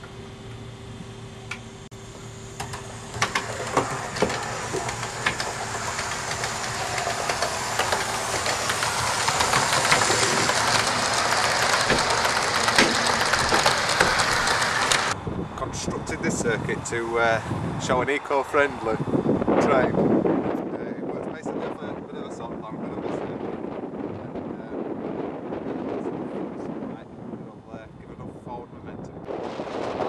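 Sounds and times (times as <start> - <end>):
model train whirring: 0.0 - 20.7
wheels clicking on track: 2.6 - 19.9.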